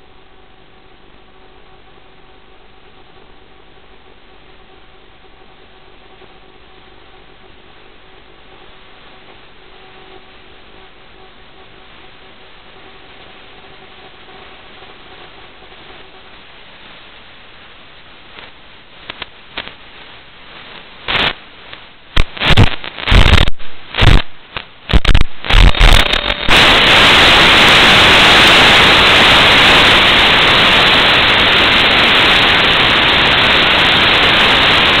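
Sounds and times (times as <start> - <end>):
loud white-noise hiss: 0.0 - 35.0
radio static hiss: 0.0 - 35.0
bursts of crackle: 12.0 - 35.0.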